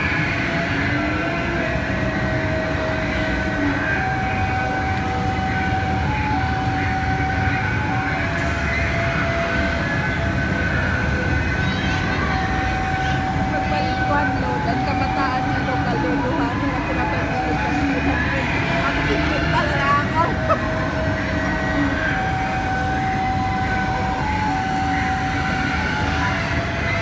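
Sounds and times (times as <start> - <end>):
kiddie ride rumble: 0.0 - 27.0.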